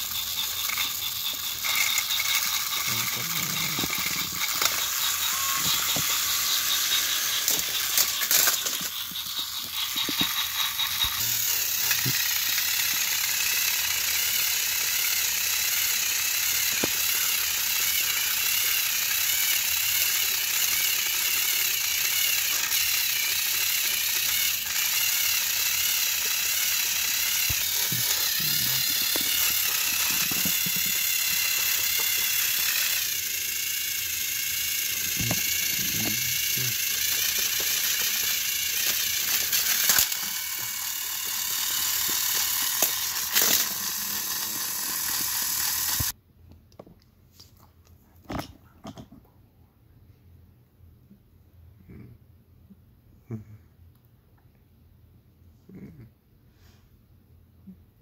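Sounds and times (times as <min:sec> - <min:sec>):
gears rattling: 0:00.0 - 0:46.2
toy train motors whining: 0:00.0 - 0:46.2.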